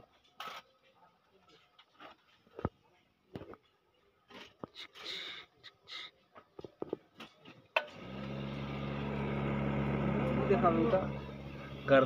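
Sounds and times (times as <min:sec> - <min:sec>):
blower motor humming: 0:07.9 - 0:12.0.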